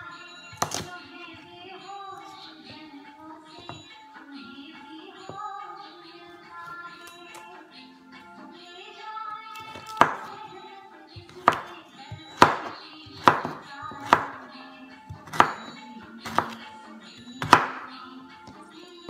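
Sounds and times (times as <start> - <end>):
knife chopping on wooden board: 0.5 - 0.9, 9.6 - 10.4, 11.2 - 14.4, 15.1 - 16.6, 17.4 - 17.9.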